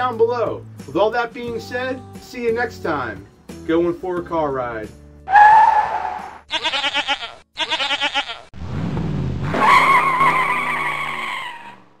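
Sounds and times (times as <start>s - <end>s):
tire squeal: 5.3s - 6.4s, 9.4s - 12.0s
goat bleats: 6.5s - 8.5s.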